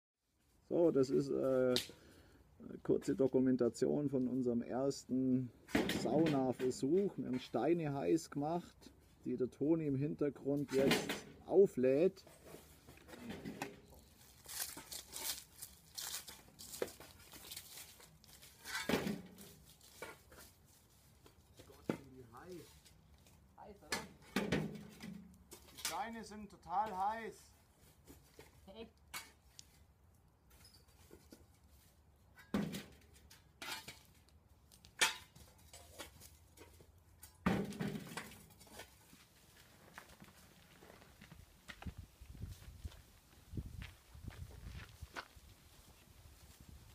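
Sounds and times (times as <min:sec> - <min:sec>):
stones clanking in metal wheelbarrow: 0:10.6 - 0:11.4, 0:12.2 - 0:20.6, 0:23.8 - 0:26.1, 0:32.3 - 0:41.3
rustling handling noise: 0:12.2 - 0:26.2.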